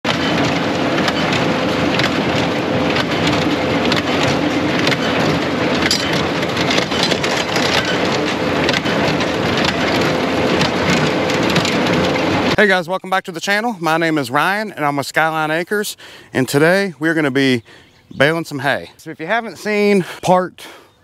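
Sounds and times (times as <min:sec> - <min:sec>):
hay baler clattering: 0:00.0 - 0:17.6
faint engine hum: 0:00.1 - 0:12.7.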